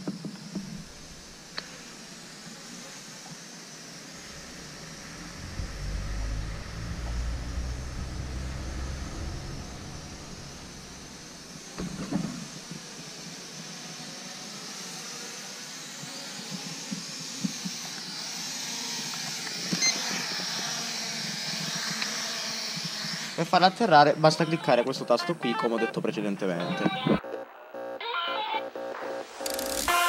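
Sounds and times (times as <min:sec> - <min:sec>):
quadcopter propellers whining: 0:00.0 - 0:25.6, 0:27.2 - 0:30.0
wind rumble on microphone: 0:04.2 - 0:12.7.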